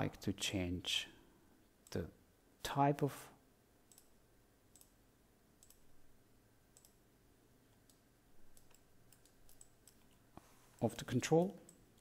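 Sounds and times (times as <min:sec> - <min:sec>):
faint computer mouse clicks: 0:03.9 - 0:04.1, 0:06.8 - 0:07.0.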